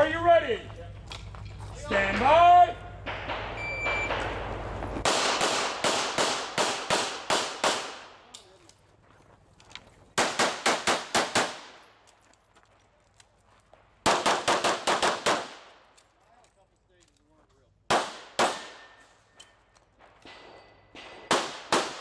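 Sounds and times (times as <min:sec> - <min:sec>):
pistol shots: 0:03.1 - 0:08.3, 0:10.2 - 0:11.9, 0:14.0 - 0:15.8, 0:17.9 - 0:19.0, 0:20.1 - 0:22.0
shot timer beep: 0:03.6 - 0:04.2.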